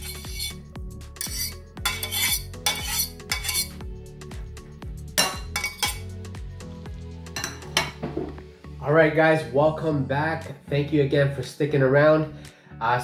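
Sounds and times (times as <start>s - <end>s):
fork scraping metal pot: 0.0s - 3.8s, 5.2s - 6.1s
background music with beat: 0.0s - 9.5s.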